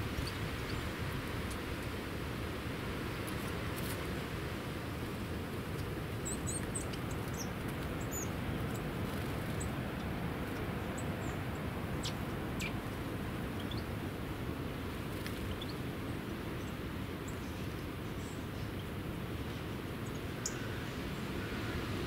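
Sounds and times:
low rushing background noise: 0.0s - 22.0s
songbirds chirping: 4.4s - 22.0s.

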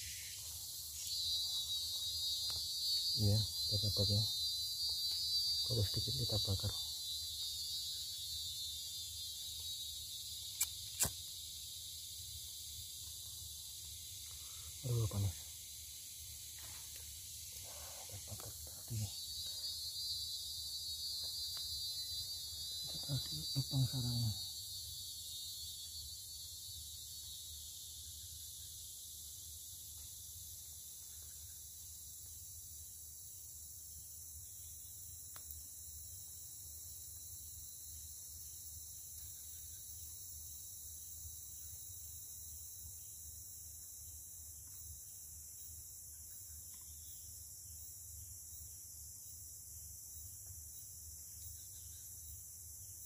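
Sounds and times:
insects droning: 0.0s - 53.0s
sharp clicks: 10.6s - 11.2s.

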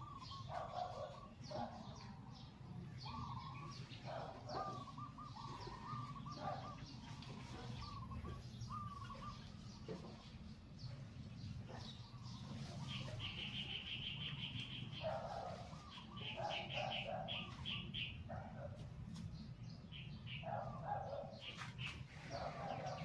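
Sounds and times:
lower-pitched bird calls: 0.0s - 9.9s, 12.0s - 18.5s
birds chirping: 0.0s - 23.0s.

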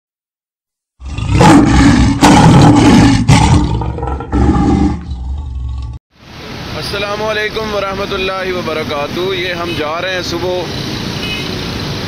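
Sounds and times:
big cat roaring: 1.0s - 6.0s.

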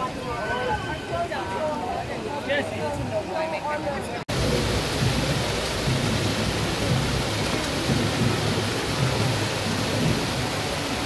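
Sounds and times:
water rushing into a pool: 4.3s - 11.0s.

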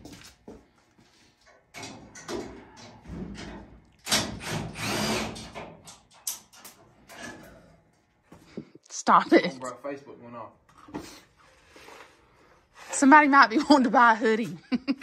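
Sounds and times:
cordless drill whining: 4.8s - 5.4s.

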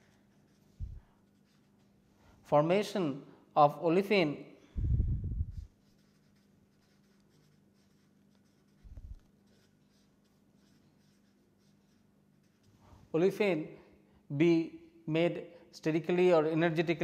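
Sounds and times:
marker pen scratching on paper: 0.0s - 2.0s, 5.4s - 12.8s
faint steady hum: 4.4s - 15.8s.

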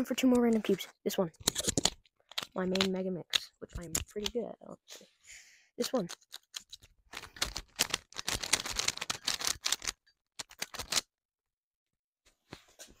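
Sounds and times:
puzzle cube layers clicking: 0.2s - 4.4s, 5.9s - 11.0s.

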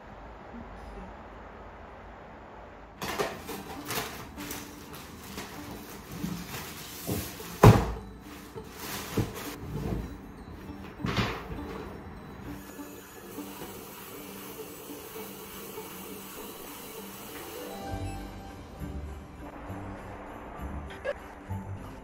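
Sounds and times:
plastic wrapping crinkling: 3.0s - 9.6s.

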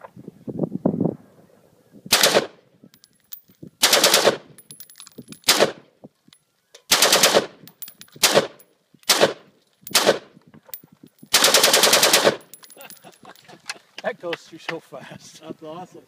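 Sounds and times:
rapid rifle shot bursts: 2.1s - 2.6s, 3.8s - 4.4s, 6.9s - 7.6s, 8.2s - 10.3s, 11.3s - 12.5s.

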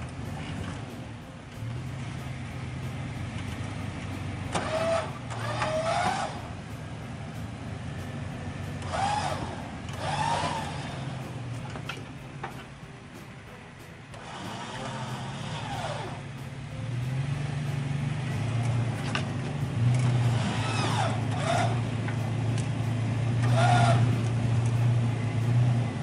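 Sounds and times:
engine running at low revs: 0.0s - 26.0s
short high squeals: 4.5s - 6.5s, 20.2s - 21.8s.

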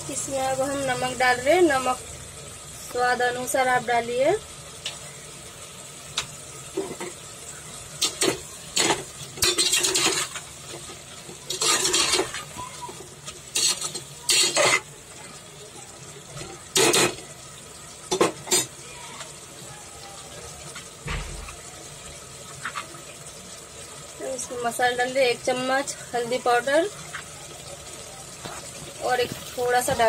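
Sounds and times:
low frying sizzle: 0.0s - 30.0s
spoon scraping a metal pot: 8.0s - 10.4s, 11.5s - 12.6s, 13.5s - 14.9s.

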